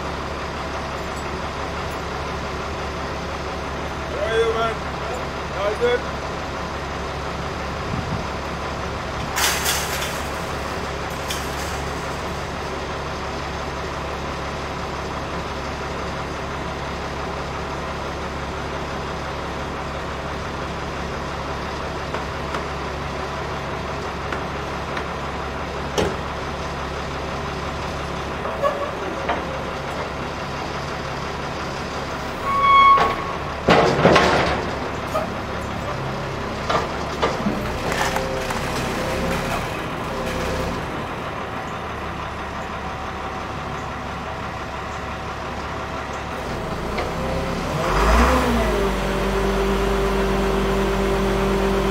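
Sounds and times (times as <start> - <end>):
heavy truck engine idling: 0.0 - 47.9
short high beep: 32.4 - 33.3.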